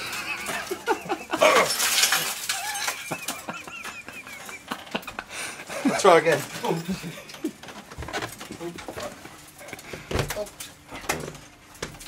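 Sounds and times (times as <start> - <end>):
man laughing high-pitched: 0.0 - 6.0
broken glass and plastic clinks: 0.3 - 4.5.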